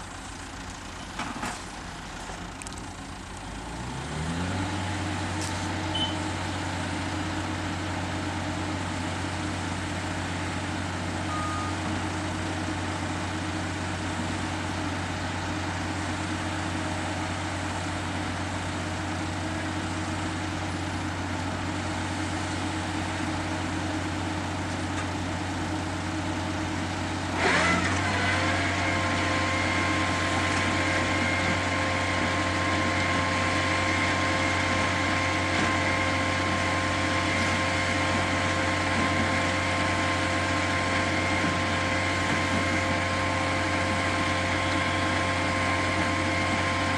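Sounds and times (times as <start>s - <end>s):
diesel engine revving: 3.4s - 8.4s, 25.8s - 46.9s.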